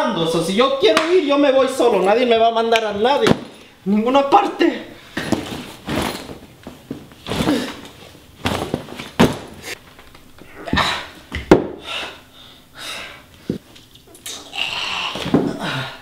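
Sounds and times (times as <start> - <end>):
bag rustling: 5.0 - 10.1
body thudding on floor: 5.1 - 9.8
bag dropped on tiled floor: 5.2 - 9.6.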